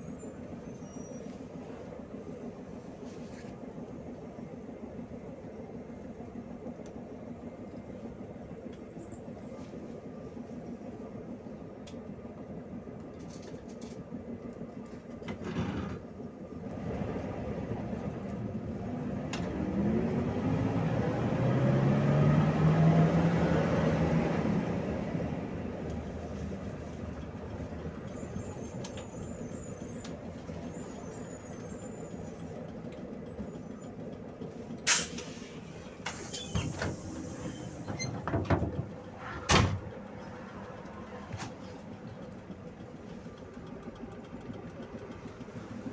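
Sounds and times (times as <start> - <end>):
bus engine: 0.0 - 45.9
road rumble: 0.0 - 45.9
pneumatic brake air hiss: 34.8 - 38.0
bus door knocks: 36.5 - 40.0.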